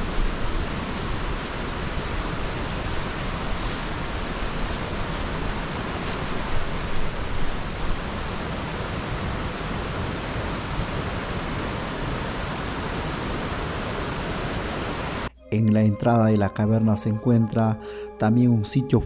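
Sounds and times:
river water rushing: 0.0s - 15.3s.

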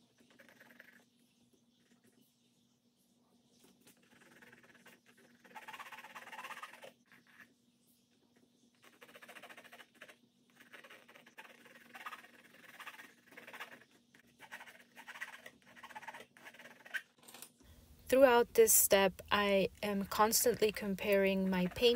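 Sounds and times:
pencil scratching on canvas: 3.9s - 7.5s, 8.8s - 17.1s, 19.6s - 21.9s
steady low hum: 17.7s - 21.9s.

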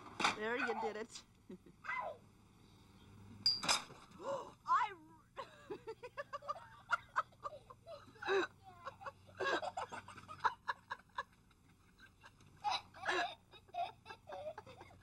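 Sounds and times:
child making vocal sounds and laughing: 1.8s - 2.2s, 7.2s - 9.7s, 12.6s - 15.0s.

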